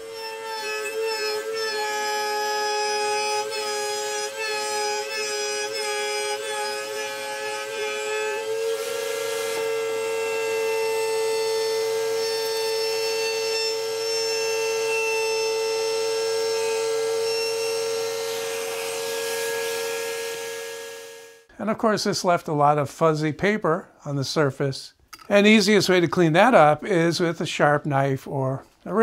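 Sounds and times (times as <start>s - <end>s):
router whining: 0.0s - 21.5s.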